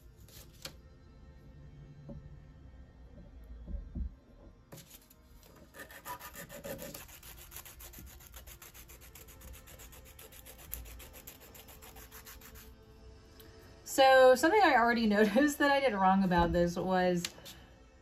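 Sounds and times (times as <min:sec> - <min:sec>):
nail file rubbing on metal: 0:05.7 - 0:12.8.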